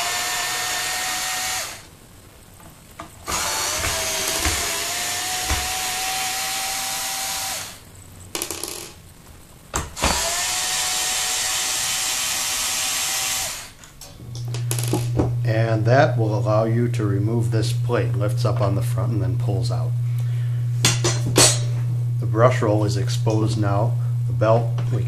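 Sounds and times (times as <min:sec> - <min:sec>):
cordless drill motor whine: 0:00.0 - 0:01.9, 0:03.2 - 0:07.8, 0:10.0 - 0:13.8, 0:14.4 - 0:20.7.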